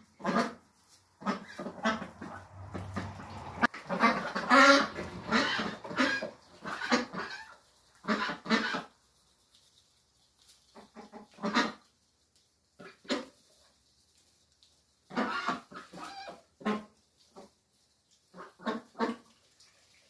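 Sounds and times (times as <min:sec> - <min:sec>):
ducks quacking: 0:00.0 - 0:09.0, 0:10.7 - 0:11.9, 0:12.8 - 0:13.4, 0:15.1 - 0:17.5, 0:18.3 - 0:19.3.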